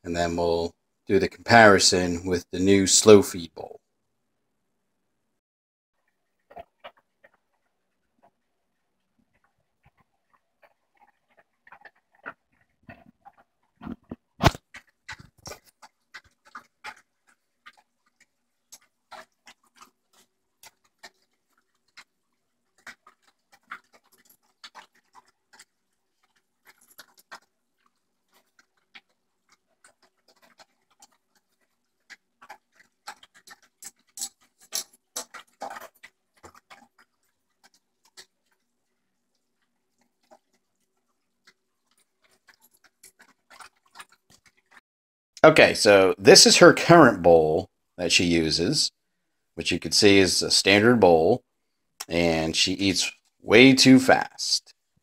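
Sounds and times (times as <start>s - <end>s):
dog crunching kibble: 9.9s - 38.7s, 39.3s - 44.8s
kibble clicking against metal bowl: 22.8s - 38.7s.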